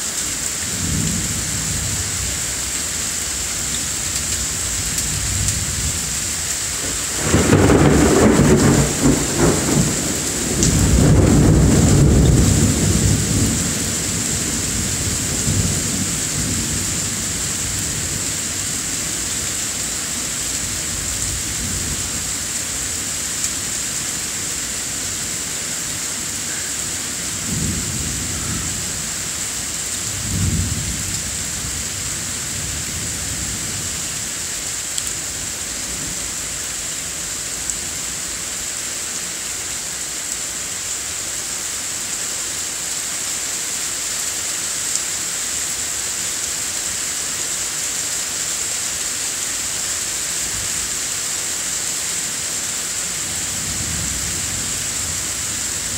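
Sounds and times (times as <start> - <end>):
steady rain hissing: 0.0 - 55.9
low rolls of thunder: 6.8 - 18.2, 30.1 - 33.6.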